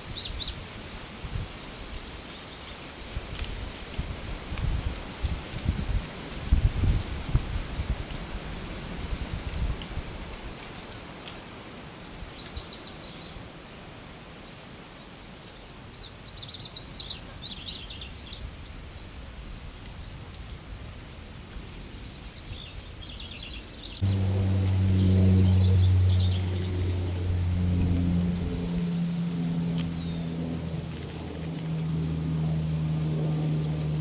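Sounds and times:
bird singing high jumbled notes: 23.1s - 28.5s
loud low hum: 24.0s - 34.0s.

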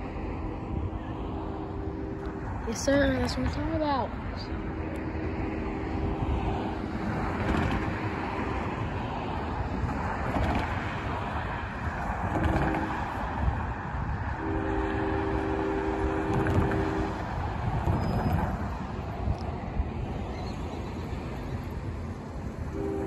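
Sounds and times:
train rumbling: 0.0s - 23.0s
locomotive air horn blasts: 1.3s - 2.9s, 4.4s - 6.7s, 12.3s - 13.2s, 14.4s - 18.2s, 22.7s - 23.0s.

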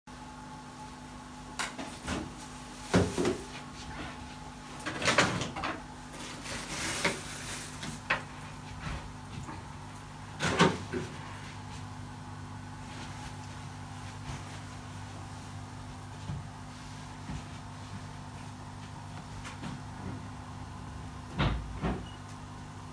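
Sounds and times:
steady low hum: 0.1s - 22.9s.

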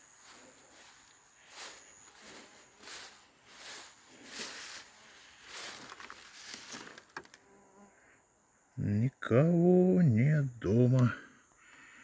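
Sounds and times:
footsteps through tall grass: 0.0s - 7.3s.

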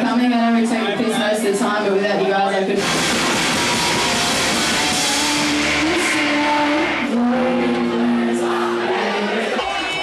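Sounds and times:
crowd cheering and screaming: 2.8s - 10.0s
held tones shifting in pitch: 3.1s - 9.9s.

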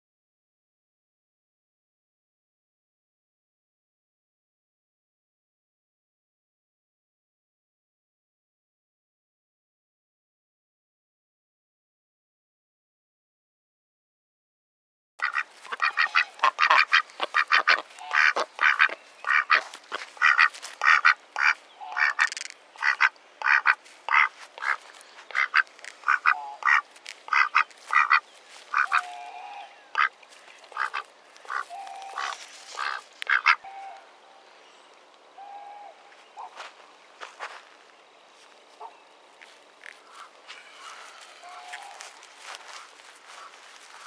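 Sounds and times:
ducks quacking: 15.2s - 34.0s, 40.0s - 44.0s.

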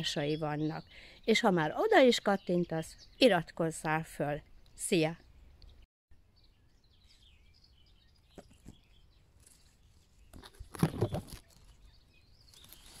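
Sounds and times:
faint bird chirping: 4.4s - 13.0s
rustling and knocking: 10.3s - 11.8s.

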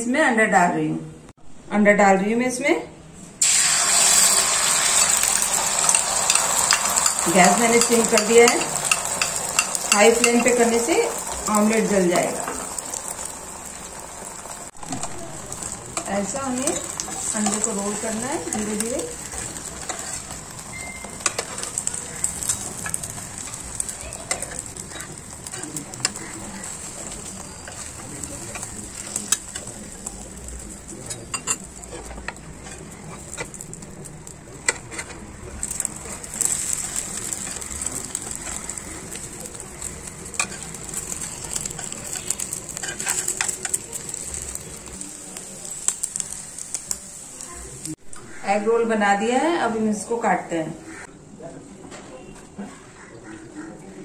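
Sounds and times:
omelette sizzling in oil: 3.4s - 48.0s
spoon and spatula scraping pan: 5.0s - 13.0s, 14.9s - 30.0s, 30.8s - 33.8s, 34.6s - 45.0s
steel spatula scraping pan: 15.6s - 29.6s, 40.3s - 43.8s.

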